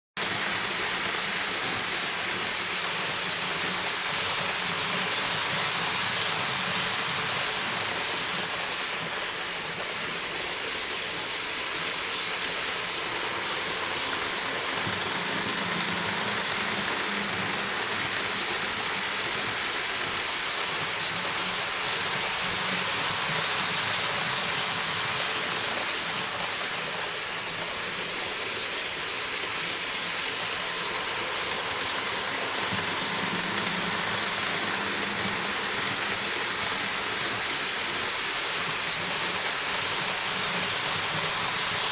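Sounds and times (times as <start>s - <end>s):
low hum of locomotive motors: 0.2s - 41.9s
model train wheels rattling on track: 0.2s - 41.9s.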